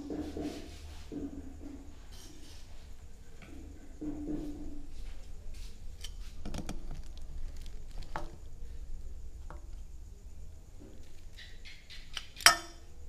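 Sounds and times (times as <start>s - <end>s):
metal utensil clinking glass bowl: 12.4s - 12.8s.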